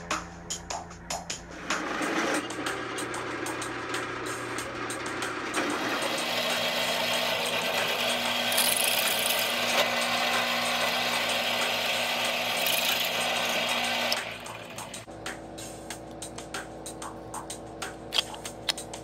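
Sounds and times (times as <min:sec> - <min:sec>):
drill press motor hum: 0:01.8 - 0:15.0
drill bit grinding through steel: 0:05.9 - 0:14.8.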